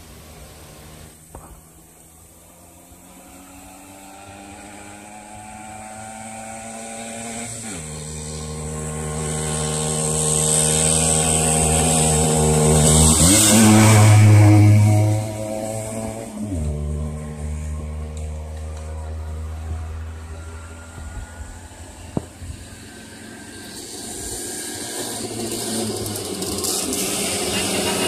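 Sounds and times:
moped engine under hard throttle: 0.0s - 28.0s.

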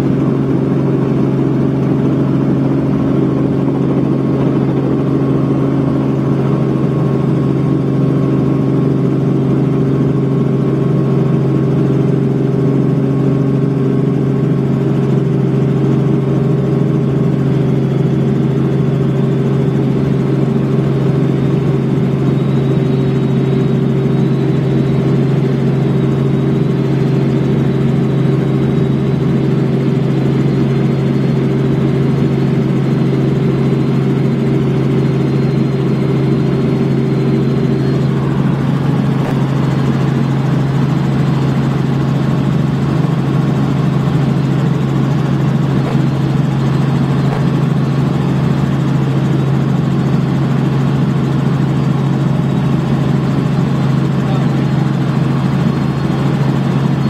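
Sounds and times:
helicopter engine and rotors drone: 0.0s - 57.0s
low hum: 33.4s - 42.5s.

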